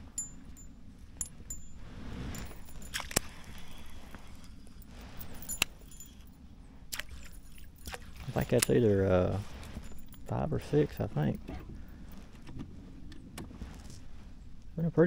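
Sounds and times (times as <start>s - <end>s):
fishing tackle clinking and clicking: 0.0s - 11.5s.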